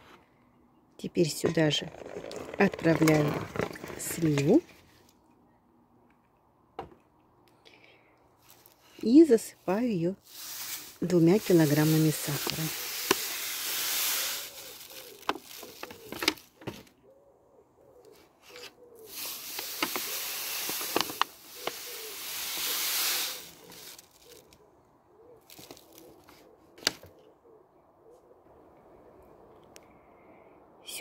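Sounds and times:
sugar pouring into pot: 0:10.3 - 0:16.1, 0:19.1 - 0:24.4.

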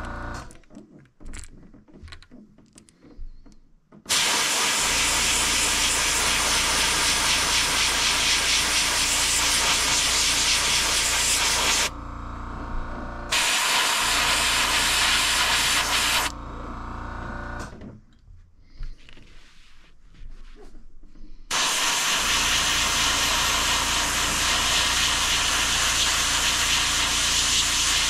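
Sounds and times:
airbrush hissing: 0:04.1 - 0:11.9, 0:13.3 - 0:16.3, 0:21.5 - 0:28.0.

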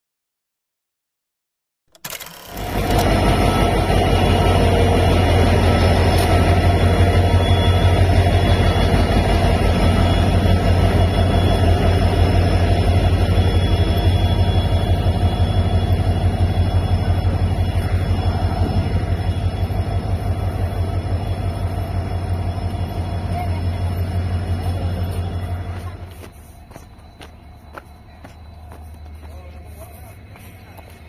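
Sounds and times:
locomotive diesel engine throbbing: 0:02.0 - 0:31.0.

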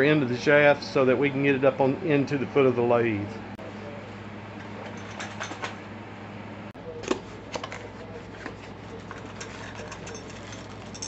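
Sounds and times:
cardboard and paper rustling: 0:07.1 - 0:10.9.

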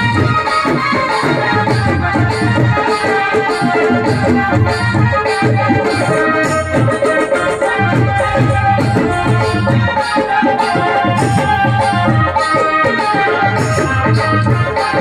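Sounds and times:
hand drum steady beat: 0:00.0 - 0:15.0
held instrument notes: 0:03.6 - 0:14.4.

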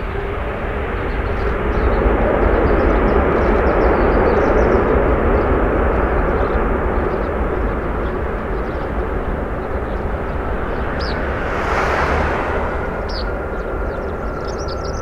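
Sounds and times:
jet engine rush: 0:09.8 - 0:14.8.

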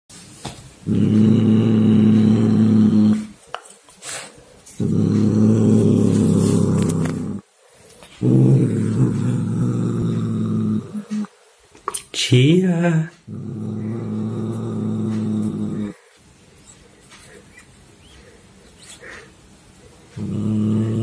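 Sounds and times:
cat growling: 0:00.8 - 0:03.3, 0:04.8 - 0:07.5, 0:08.2 - 0:11.4, 0:13.3 - 0:16.1, 0:20.2 - 0:21.0.

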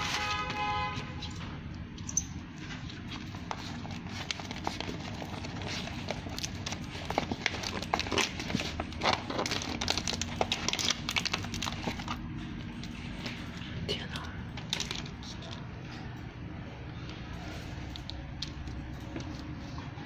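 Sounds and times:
vinyl decal paper crackling: 0:00.0 - 0:13.6
steady low hum: 0:00.0 - 0:20.0.

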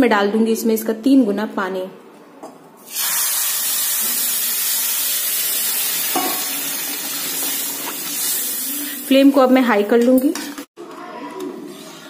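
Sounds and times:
water hissing and sizzling in hot pan: 0:02.9 - 0:09.4.

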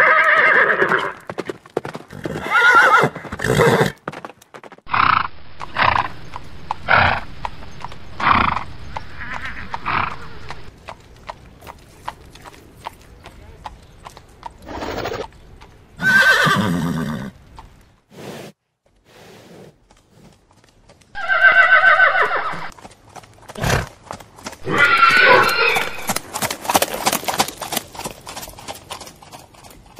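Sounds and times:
horse whinnying: 0:00.0 - 0:01.3, 0:02.1 - 0:04.0, 0:09.1 - 0:10.5, 0:16.0 - 0:17.3, 0:21.2 - 0:22.7, 0:24.6 - 0:26.2
hoofbeats clip-clopping: 0:00.0 - 0:18.0, 0:18.8 - 0:29.9.

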